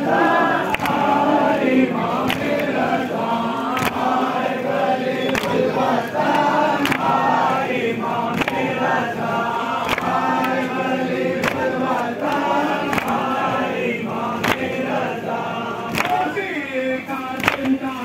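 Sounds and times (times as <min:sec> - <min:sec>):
crowd chanting in unison: 0:00.0 - 0:18.0
chest-beating slaps: 0:00.7 - 0:01.1.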